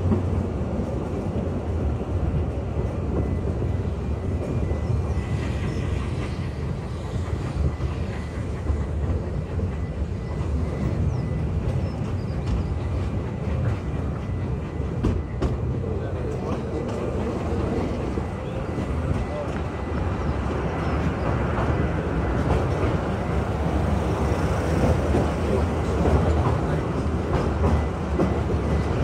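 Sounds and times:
train rumbling on track: 0:00.0 - 0:29.0.

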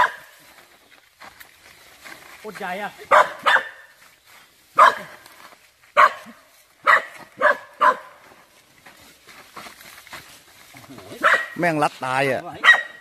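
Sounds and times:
dog barking: 0:00.0 - 0:00.3, 0:03.1 - 0:03.9, 0:04.8 - 0:05.2, 0:06.0 - 0:08.2, 0:11.1 - 0:11.6, 0:12.6 - 0:13.0.

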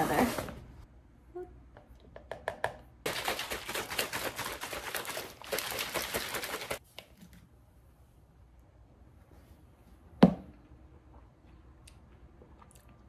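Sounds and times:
scooping clicks and taps: 0:01.8 - 0:06.8
shaker bottle rattling: 0:03.1 - 0:06.8.

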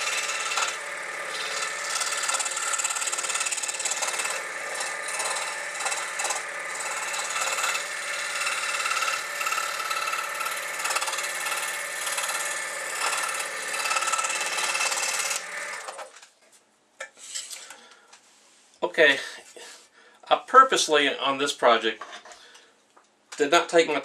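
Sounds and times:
saw motor hum: 0:00.0 - 0:16.1
scroll saw blade rasping: 0:00.0 - 0:16.1.

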